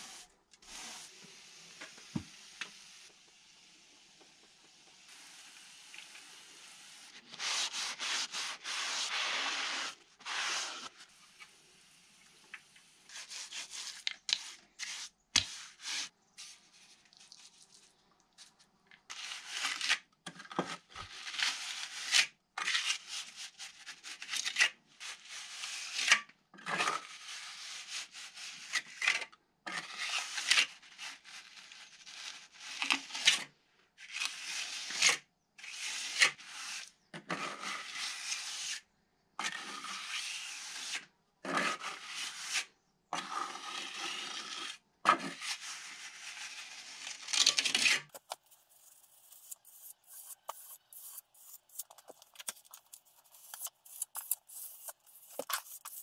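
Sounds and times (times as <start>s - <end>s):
trowel scraping render on wall: 47.7s - 56.0s.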